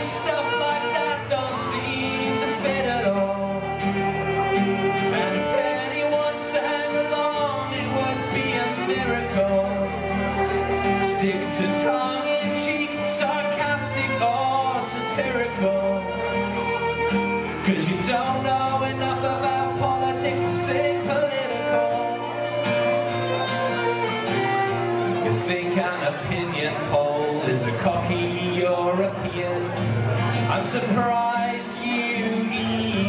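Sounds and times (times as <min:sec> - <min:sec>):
acoustic guitar strumming: 0:00.0 - 0:33.0
fiddle playing bowed melody: 0:00.0 - 0:33.0.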